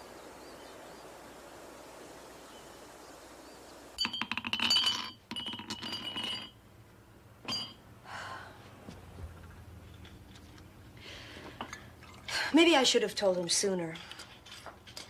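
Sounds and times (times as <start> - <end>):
glass bottles clinking: 4.0 - 6.6, 7.4 - 7.8.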